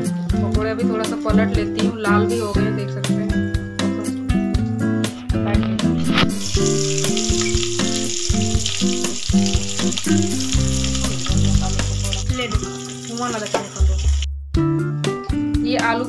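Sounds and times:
background music: 0.0 - 16.0
deep-frying sizzle in oil: 6.0 - 14.3.

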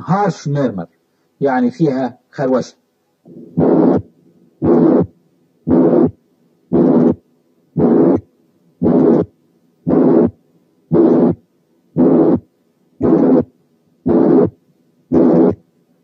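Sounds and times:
harsh heart murmur: 3.3 - 7.2, 13.0 - 13.5, 14.1 - 15.6
heartbeats: 12.0 - 13.5.

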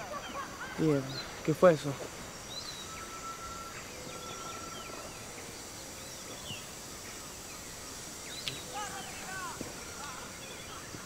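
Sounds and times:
bird chirps: 0.0 - 11.0
steady outdoor hiss: 0.0 - 11.0
long thin high tone: 2.8 - 5.1.

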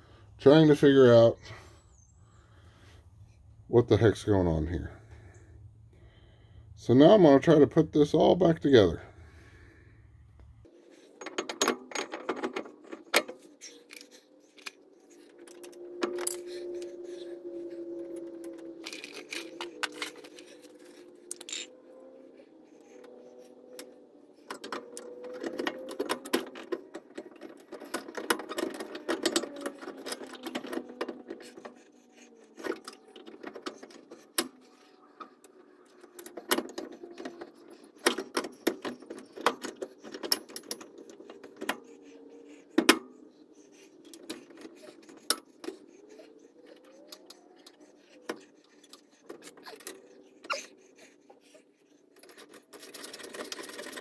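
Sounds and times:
metal clinks of brake parts and tools: 18.8 - 21.8.

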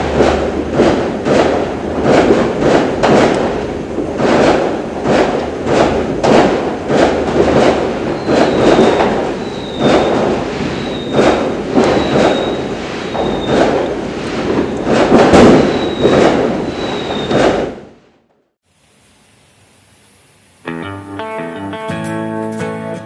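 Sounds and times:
fireworks bangs and crackles: 0.0 - 18.0
fireworks whistles: 5.3 - 17.8.

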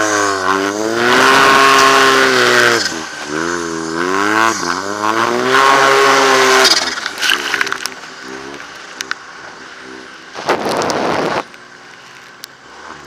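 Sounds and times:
snowmobile engine revving: 0.0 - 13.0
loud rush of noise: 9.3 - 11.5.

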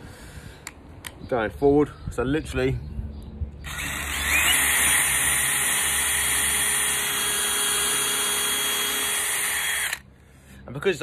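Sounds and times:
drill drilling into wood: 3.6 - 10.0.

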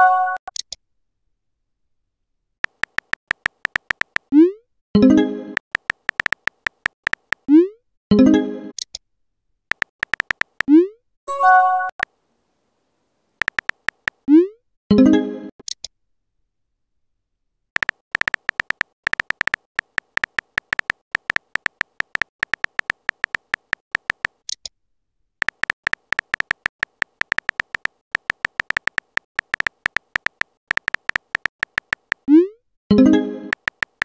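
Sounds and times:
phone keyboard typing clicks: 2.6 - 4.3, 5.6 - 7.5, 9.7 - 10.7, 13.4 - 14.3, 17.8 - 24.6, 25.4 - 32.3, 33.5 - 34.0.

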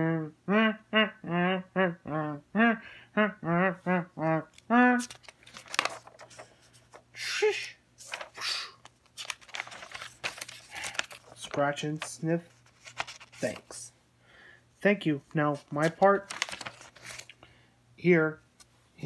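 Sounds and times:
voice making short syllables: 0.0 - 5.2, 7.2 - 8.8
paper pages rustling: 5.0 - 7.1, 8.0 - 13.8, 15.2 - 17.4.

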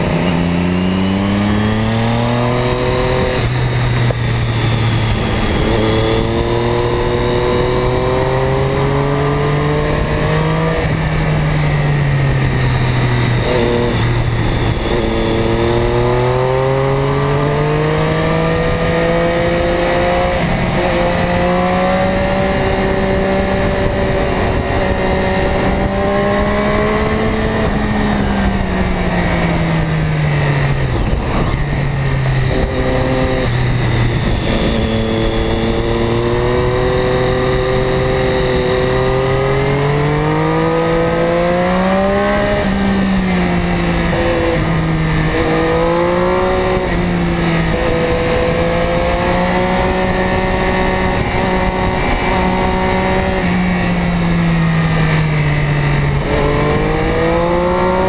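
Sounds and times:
motorcycle engine revving: 0.0 - 58.0
wind rushing over microphone: 0.0 - 58.0.

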